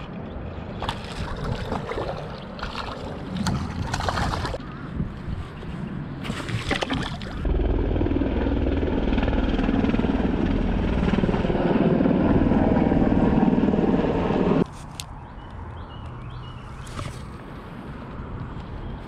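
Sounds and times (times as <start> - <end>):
helicopter rumble: 7.4 - 14.7.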